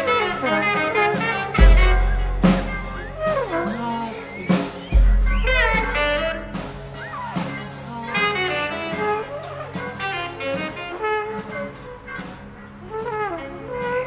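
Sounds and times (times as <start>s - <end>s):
saxophone and pipe trumpets: 0.0s - 14.0s
scattered drum strikes: 1.5s - 7.9s
deep low boom: 1.6s - 3.7s.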